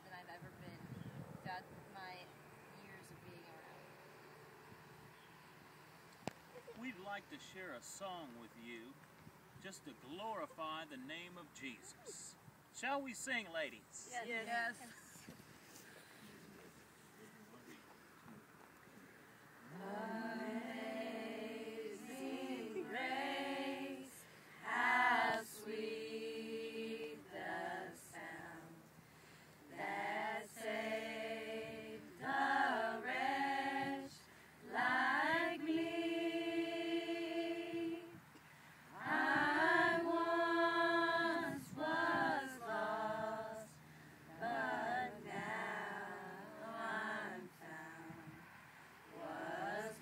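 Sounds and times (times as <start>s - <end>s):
women singing a cappella: 14.1s - 15.2s, 19.6s - 48.4s, 49.1s - 50.0s.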